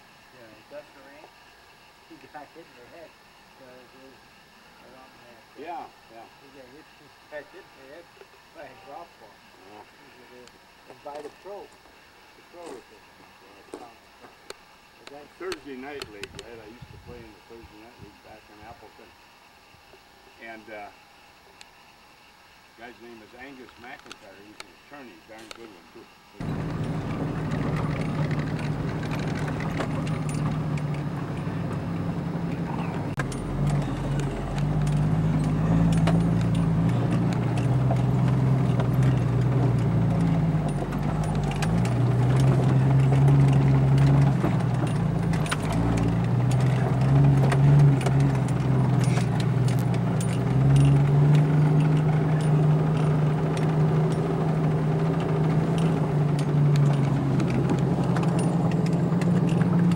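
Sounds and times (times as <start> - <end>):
vehicle engine humming: 26.4 - 59.9.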